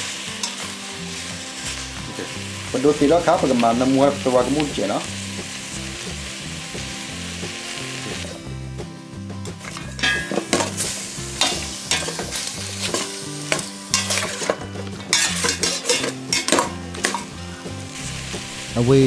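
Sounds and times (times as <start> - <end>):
chicken sizzling in a pot: 0.0 - 19.0
metal spoon scraping a pot: 11.4 - 17.3.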